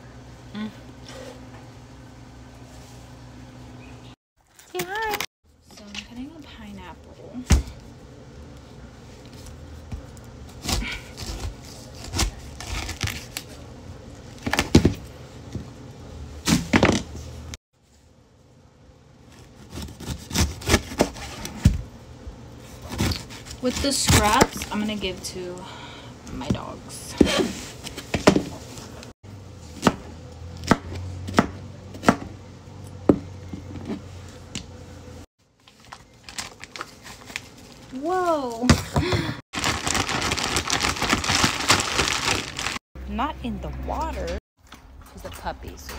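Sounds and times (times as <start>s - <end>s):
knife cutting pineapple rind: 19.2s - 21.5s.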